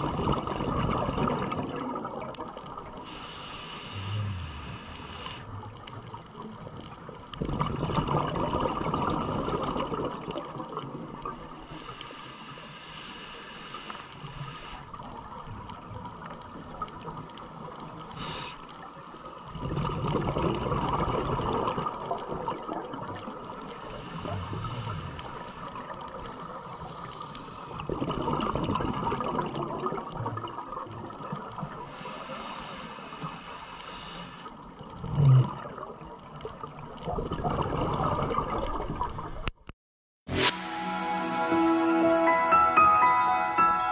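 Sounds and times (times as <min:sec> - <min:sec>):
exhaled breath bubbling underwater: 0:03.0 - 0:05.6, 0:19.5 - 0:23.0, 0:27.7 - 0:30.1
underwater hiss: 0:03.0 - 0:05.7, 0:11.4 - 0:15.3, 0:17.5 - 0:19.6, 0:23.6 - 0:28.0, 0:31.8 - 0:34.6, 0:40.3 - 0:43.9.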